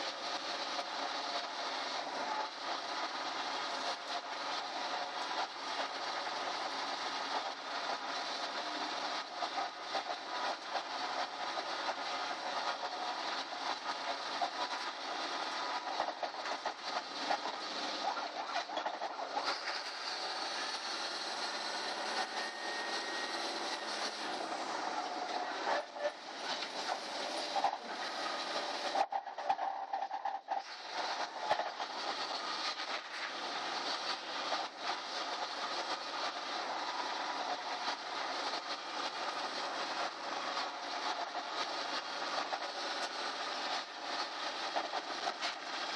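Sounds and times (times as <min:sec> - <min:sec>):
bus engine and road noise: 0:11.4 - 0:28.9.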